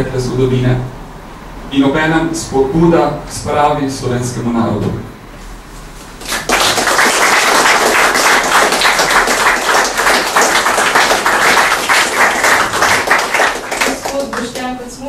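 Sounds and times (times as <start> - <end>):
audience applauding: 6.2 - 14.7.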